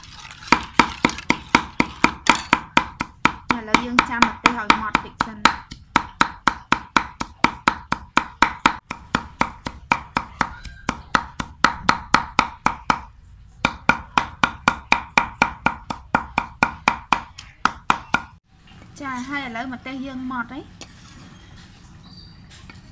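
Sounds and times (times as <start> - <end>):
cleaver chopping on wooden board: 0.5 - 18.3.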